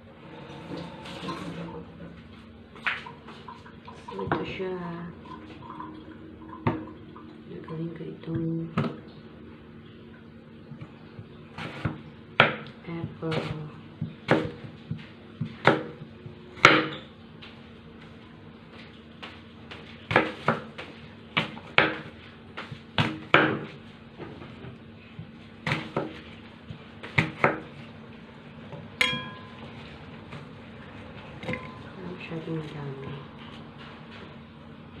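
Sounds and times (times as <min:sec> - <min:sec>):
knife chopping on wooden board: 0:13.3 - 0:17.0, 0:20.1 - 0:23.8, 0:27.0 - 0:27.7
ringing clink: 0:29.0 - 0:29.6.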